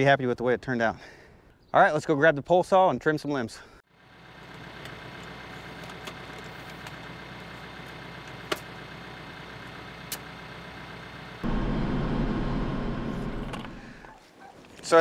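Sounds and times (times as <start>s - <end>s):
tractor diesel engine idling: 4.0s - 14.0s.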